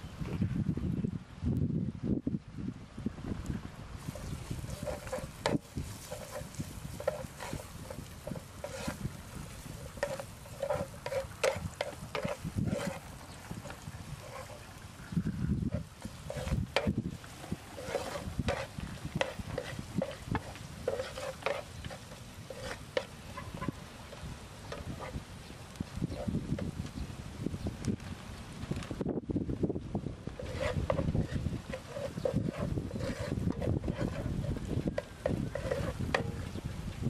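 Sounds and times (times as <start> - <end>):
spatula scraping a frying pan: 4.0 - 26.8, 30.3 - 36.7
garlic stir-frying in oil: 4.0 - 27.8, 29.8 - 37.0.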